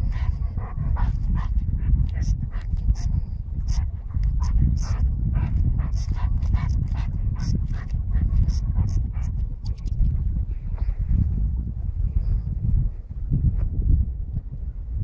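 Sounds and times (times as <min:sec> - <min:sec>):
dog sniffing hard: 0:00.0 - 0:09.4
wind rumble on microphone: 0:00.0 - 0:15.0.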